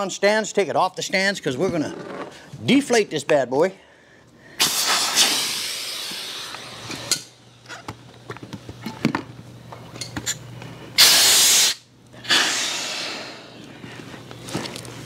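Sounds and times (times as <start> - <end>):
air hissing from valves: 4.5 - 7.3, 11.0 - 13.8
loud rush of air: 4.6 - 6.8.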